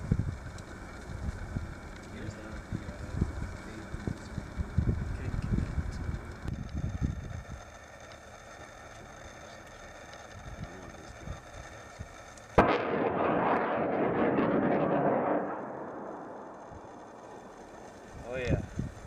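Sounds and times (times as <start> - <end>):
rocket launch rushing and crackling: 10.1 - 19.0.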